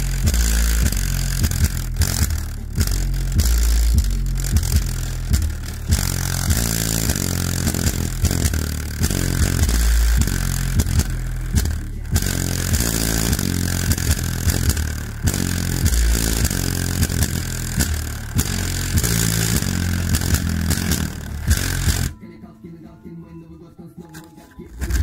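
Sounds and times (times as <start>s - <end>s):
paper buzzing and rattling: 0.0s - 22.1s, 24.2s - 25.0s
deep rap bass line: 0.0s - 25.0s.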